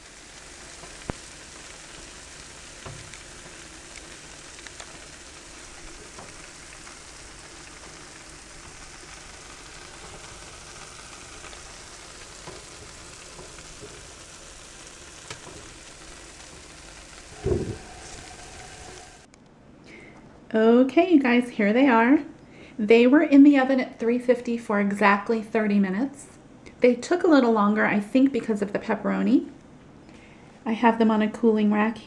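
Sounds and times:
fries sizzling on baking sheet: 0:00.0 - 0:19.3.

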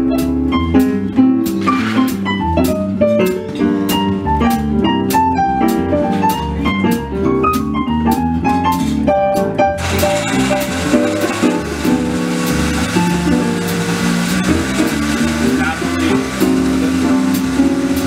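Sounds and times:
jazz piano: 0:00.0 - 0:18.0
electric bass line: 0:09.4 - 0:18.0.

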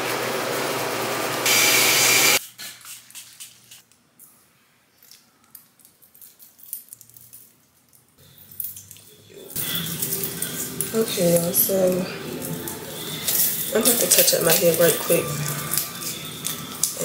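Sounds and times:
water running from tap: 0:09.5 - 0:17.0.

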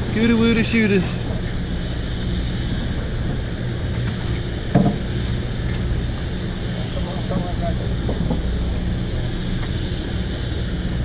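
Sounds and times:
boat machinery humming: 0:00.0 - 0:11.0.

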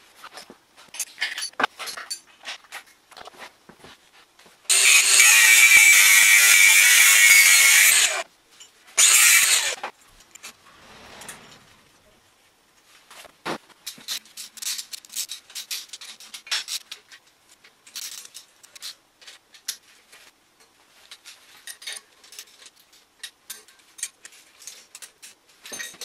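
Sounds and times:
metal tools clinking and knocking: 0:00.9 - 0:02.8, 0:21.2 - 0:26.0.

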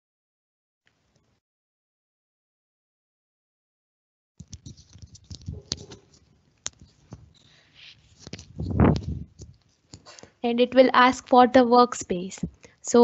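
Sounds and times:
handling noises: 0:04.4 - 0:10.4.

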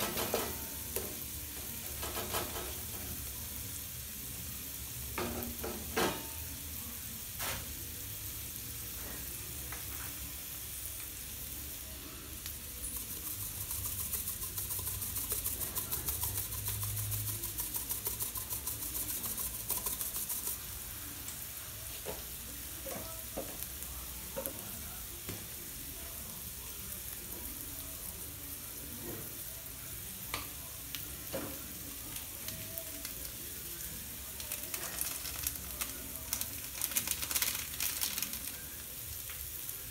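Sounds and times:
spatula scraping and tapping pan: 0:00.0 - 0:03.0
onions sizzling in butter: 0:00.0 - 0:39.9.

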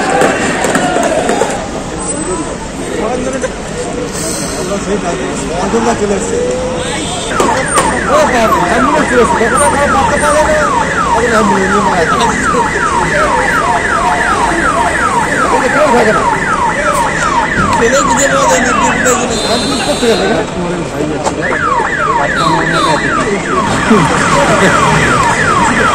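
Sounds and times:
police siren wailing: 0:05.8 - 0:20.4, 0:21.3 - 0:25.9.

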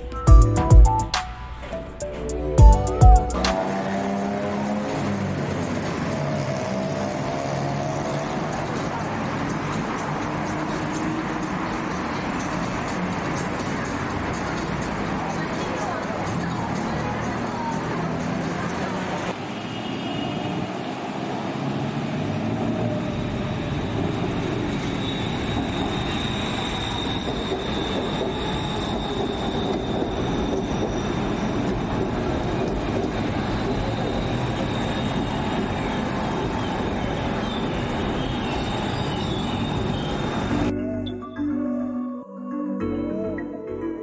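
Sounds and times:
train wheels rumbling on rail: 0:20.5 - 0:40.7.

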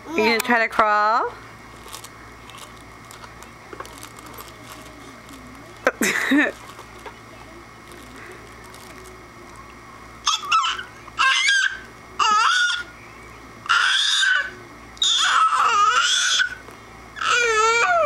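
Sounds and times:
baby squealing: 0:10.3 - 0:12.8, 0:13.7 - 0:16.6, 0:17.2 - 0:18.0.

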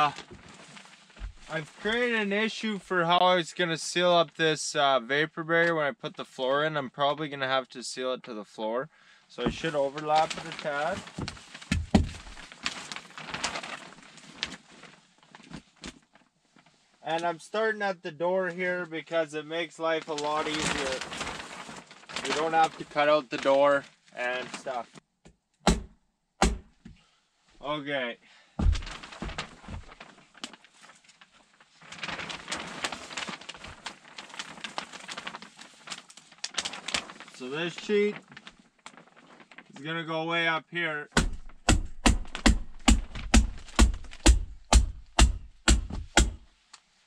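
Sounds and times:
plastic sheet crinkling: 0:00.0 - 0:02.6, 0:09.4 - 0:16.9, 0:20.0 - 0:24.9, 0:28.6 - 0:39.8, 0:41.2 - 0:46.7
dull thump: 0:01.2 - 0:01.5, 0:09.5 - 0:09.8, 0:11.2 - 0:12.4, 0:25.7 - 0:27.0, 0:28.6 - 0:30.0, 0:41.2 - 0:46.5
soft knocks: 0:28.6 - 0:30.0.

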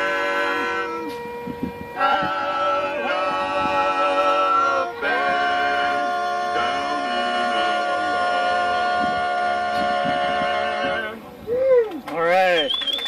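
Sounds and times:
men singing a cappella harmony: 0:02.0 - 0:11.2.

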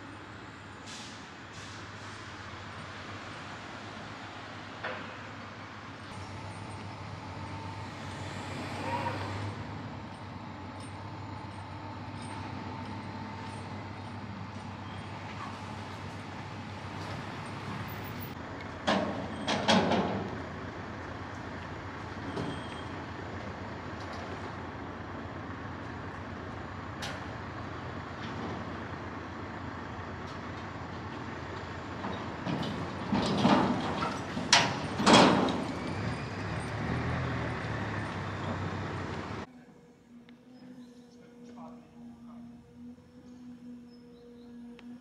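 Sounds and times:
low engine hum: 0:02.5 - 0:45.0.

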